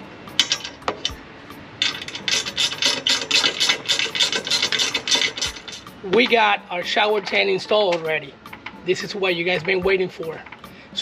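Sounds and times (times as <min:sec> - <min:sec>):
ratchet wrench clicking: 0:00.4 - 0:01.2, 0:01.8 - 0:06.4.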